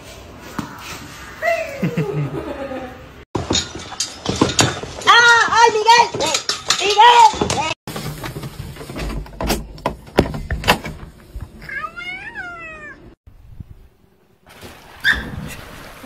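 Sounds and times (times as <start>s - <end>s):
cat meowing: 11.7s - 13.1s.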